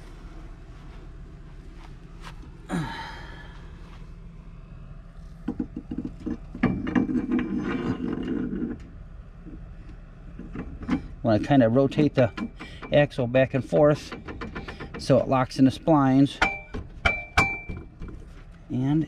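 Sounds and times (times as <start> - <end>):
metal-on-metal scraping: 5.5 - 8.9.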